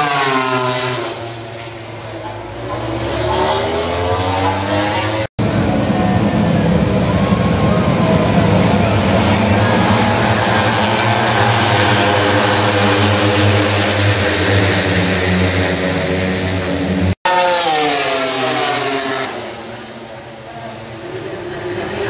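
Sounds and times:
race motorcycles at high revs: 0:00.0 - 0:22.0.

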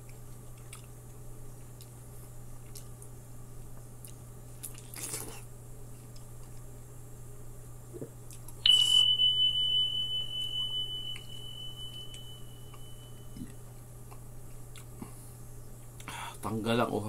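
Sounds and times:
faint chewing: 0:00.0 - 0:06.7, 0:13.4 - 0:16.2
high ringing tone: 0:08.6 - 0:13.7.

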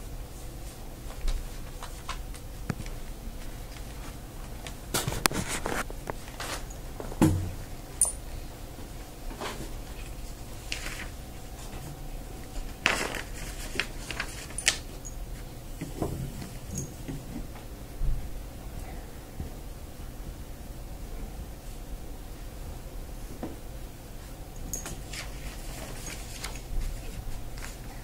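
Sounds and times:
low room hum: 0:00.0 - 0:28.0.

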